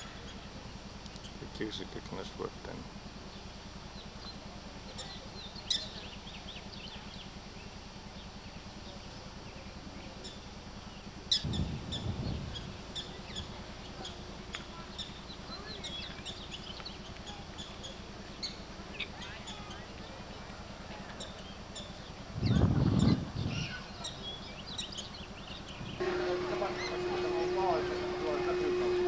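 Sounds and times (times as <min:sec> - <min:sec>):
low background hum: 0:00.0 - 0:29.0
small birds chirping: 0:03.2 - 0:29.0
low thump and rumble: 0:11.4 - 0:13.8, 0:22.3 - 0:23.8.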